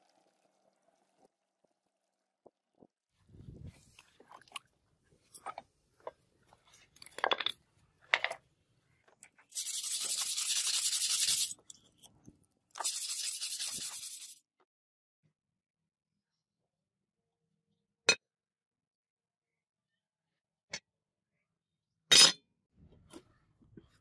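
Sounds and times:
brush scrubbing metal blade: 9.5s - 11.6s, 12.8s - 14.4s.

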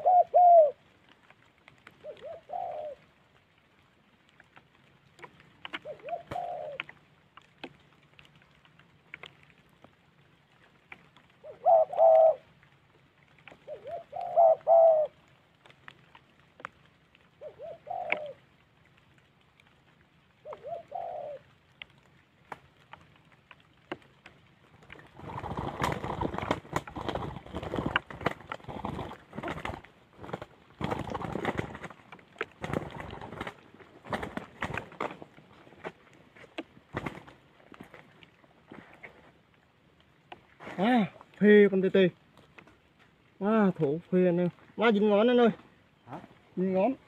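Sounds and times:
doves cooing: 0.0s - 0.9s, 1.8s - 3.3s, 5.1s - 8.0s, 10.6s - 15.4s, 17.3s - 18.5s, 20.4s - 21.6s, 24.7s - 39.4s
wing flaps and scuffling: 4.4s - 9.5s, 23.9s - 39.4s.

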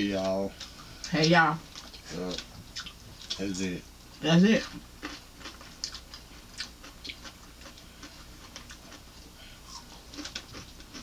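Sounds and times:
crunching cucumber chewing: 4.6s - 11.0s.

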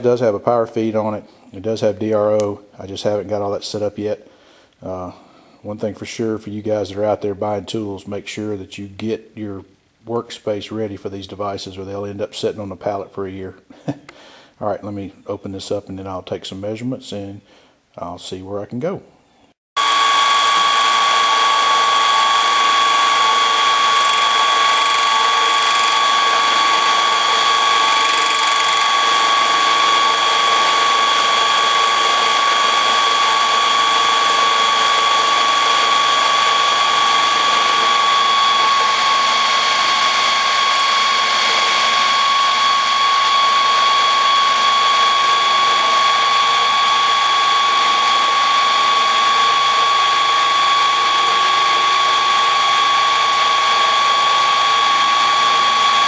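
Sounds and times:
milling machine whining: 19.8s - 56.0s.

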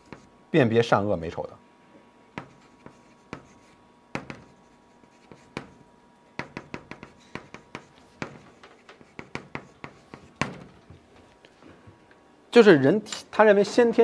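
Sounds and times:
chalk strokes and taps on blackboard: 0.0s - 0.3s, 2.4s - 5.8s, 6.4s - 10.6s.

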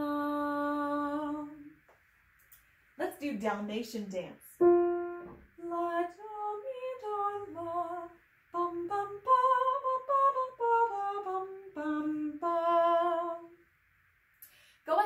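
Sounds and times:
woman singing wordless tune: 0.0s - 1.8s, 5.6s - 13.6s
piano note: 4.6s - 5.5s.

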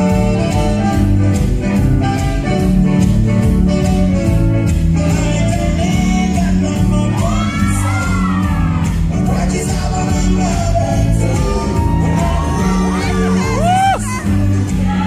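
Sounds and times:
dance music with singing: 4.7s - 15.0s
shouted cries: 7.2s - 8.8s, 11.7s - 15.0s.

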